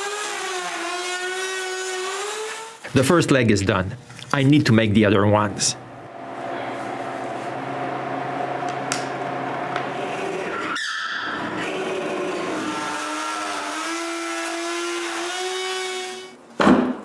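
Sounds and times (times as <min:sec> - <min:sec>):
drill press boring wood: 0:00.0 - 0:02.8, 0:11.4 - 0:16.4
router cutting wood: 0:00.0 - 0:02.9, 0:11.3 - 0:16.4.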